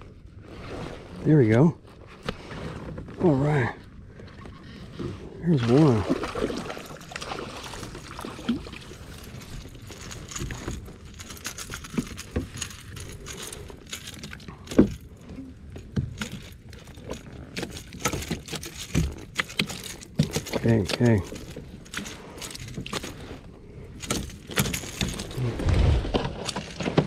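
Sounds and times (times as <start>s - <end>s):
fishing gear clicking and rattling: 5.6s - 27.0s.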